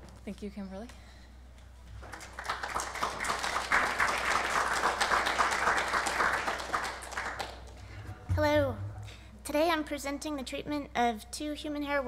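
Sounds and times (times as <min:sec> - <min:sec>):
audience applauding: 0:02.0 - 0:07.8.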